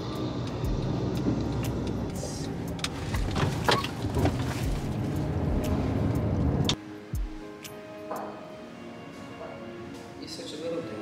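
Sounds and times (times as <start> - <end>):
car engine rumble: 0.0 - 6.8
road noise inside car: 0.0 - 6.8.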